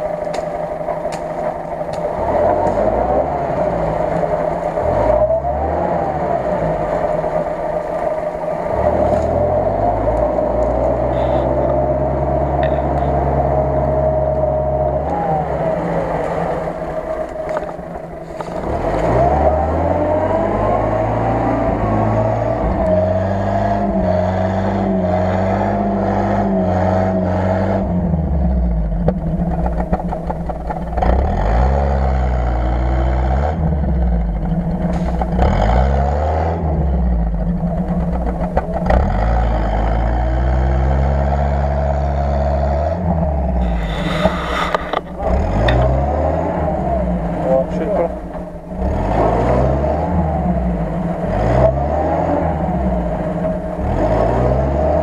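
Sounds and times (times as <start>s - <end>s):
steady mechanical whine: 0.0s - 23.0s, 43.0s - 51.5s
off-road vehicle engine revving: 0.0s - 55.0s.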